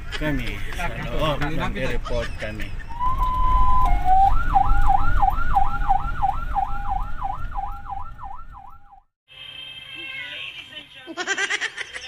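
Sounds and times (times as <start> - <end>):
car engine and road rumble: 0.0 - 9.0
siren yelping: 2.9 - 9.1.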